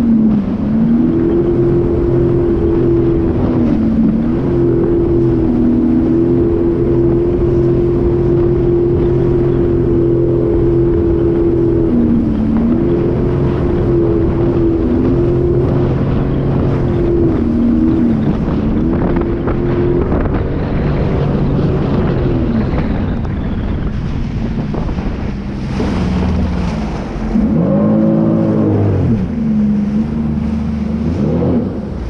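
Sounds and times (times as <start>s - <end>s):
watercraft engine running: 0.0s - 32.0s
wind on microphone: 0.0s - 32.0s.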